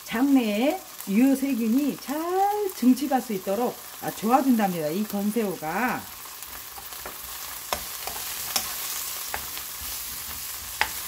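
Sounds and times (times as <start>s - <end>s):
vegetables sizzling in oil: 0.0s - 11.0s
spoon tapping pan: 6.7s - 11.0s.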